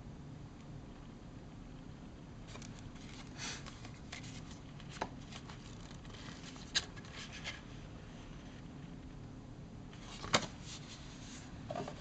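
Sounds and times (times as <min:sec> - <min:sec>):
paper and cardboard rustling: 0:02.5 - 0:07.8, 0:10.0 - 0:12.0.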